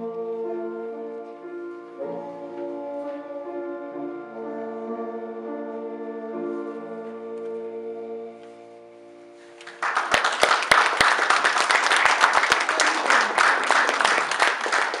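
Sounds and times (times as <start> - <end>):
bassoon and piano chord: 0.0 - 9.6
audience applause: 9.6 - 15.0.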